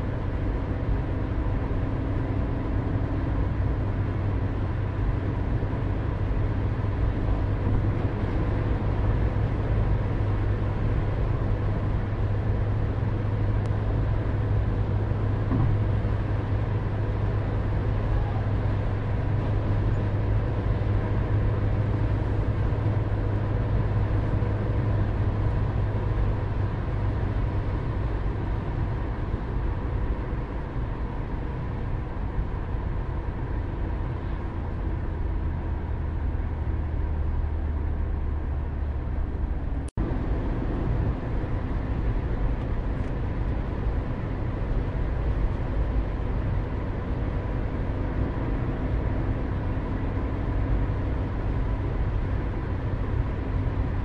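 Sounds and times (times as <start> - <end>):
car engine and tyre rumble: 0.0 - 54.0.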